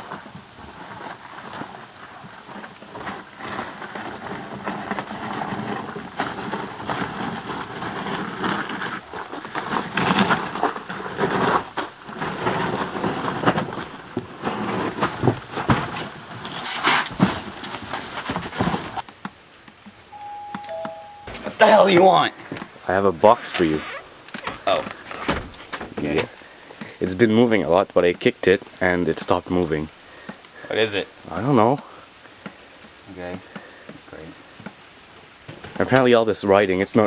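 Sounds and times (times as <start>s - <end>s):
sharp knocks and crackles: 0.0s - 20.0s, 34.6s - 36.1s
cardboard box scraping and rustling: 0.1s - 19.0s.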